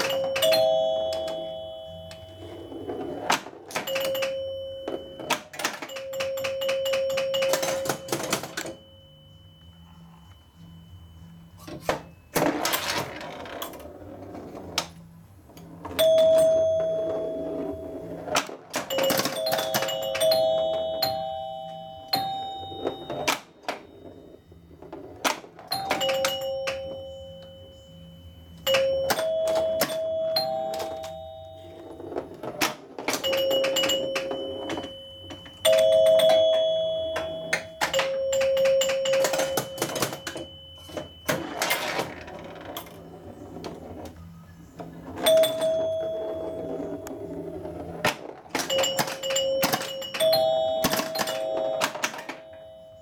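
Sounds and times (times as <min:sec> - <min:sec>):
pinball playfield clicks and knocks: 0:00.0 - 0:08.8, 0:18.3 - 0:24.0, 0:24.8 - 0:27.5, 0:28.6 - 0:44.1, 0:47.9 - 0:53.0
pinball chime tones: 0:00.0 - 0:14.9, 0:15.6 - 0:53.0.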